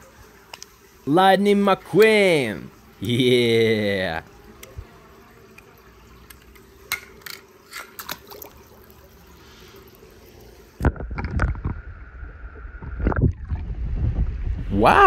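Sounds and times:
faint water dripping: 0:00.0 - 0:11.8
toy car splashing into water: 0:06.3 - 0:08.9.

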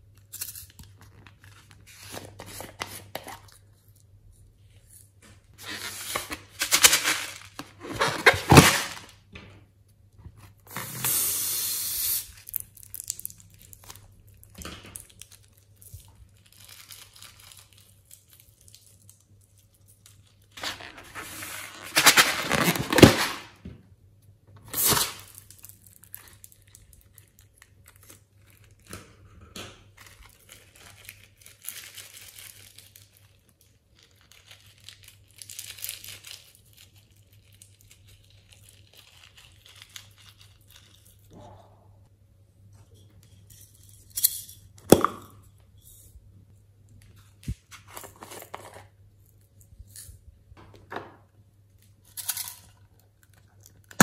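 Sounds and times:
crinkling and rustling: 0:00.5 - 0:09.6, 0:12.5 - 0:23.6, 0:46.9 - 0:54.0
rubber tearing: 0:20.6 - 0:23.4.

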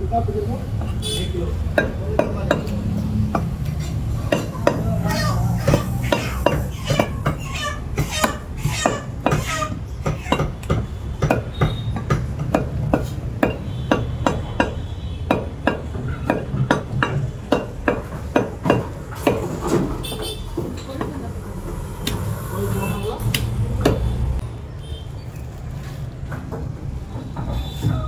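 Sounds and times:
cleaver chopping meat on wood: 0:01.7 - 0:19.5.

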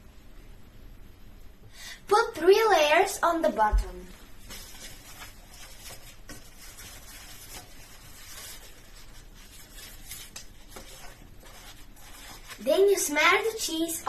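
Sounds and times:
pastry sheets rustling: 0:03.5 - 0:14.0.

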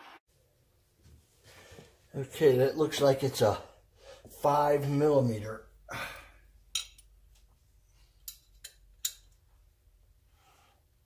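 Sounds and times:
hand tools clicking and clinking: 0:08.2 - 0:09.4.

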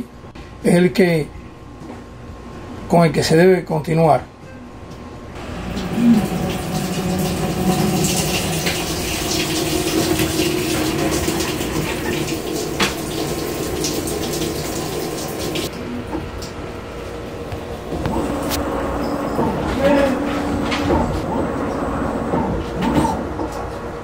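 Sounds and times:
water spraying into washer tub: 0:05.4 - 0:15.7
low hum: 0:15.7 - 0:24.0.

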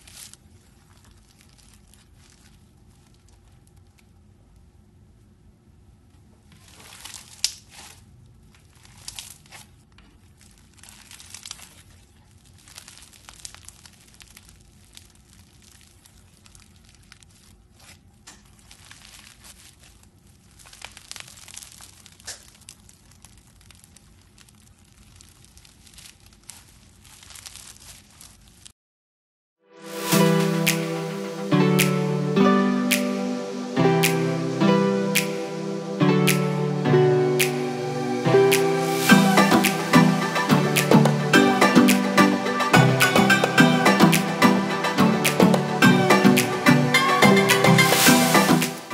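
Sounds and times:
slime crackling: 0:00.0 - 0:04.2, 0:06.4 - 0:28.7.

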